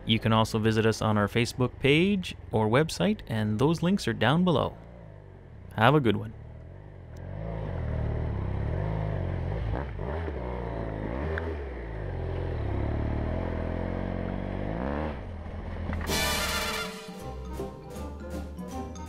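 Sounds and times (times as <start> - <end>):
motorcycle engine revving: 4.7 - 16.9
music: 16.1 - 19.0.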